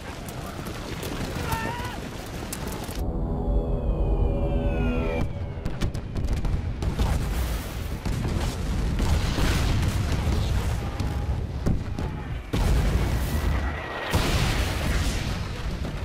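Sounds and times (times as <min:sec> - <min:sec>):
bombs exploding: 0:05.2 - 0:16.0.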